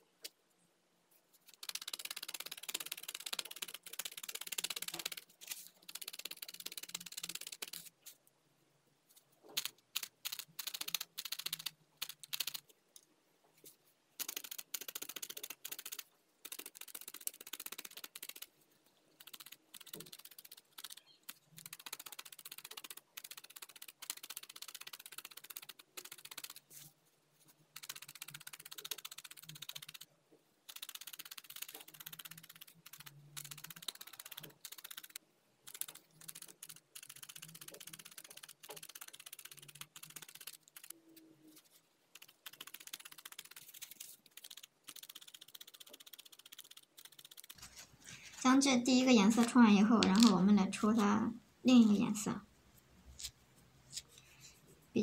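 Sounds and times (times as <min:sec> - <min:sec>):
felting needle scratchy pokes: 0:01.3 - 0:08.2, 0:13.6 - 0:30.1, 0:30.7 - 0:51.2, 0:53.0 - 0:54.6.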